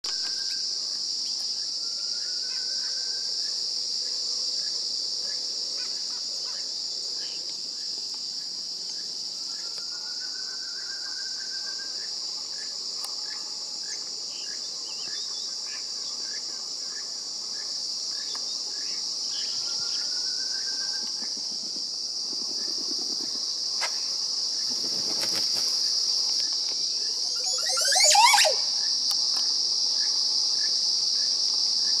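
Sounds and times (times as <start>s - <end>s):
high-pitched insect drone: 0.1s - 32.0s
bird warbling song: 27.2s - 28.8s
slow rising whistles: 27.2s - 28.9s.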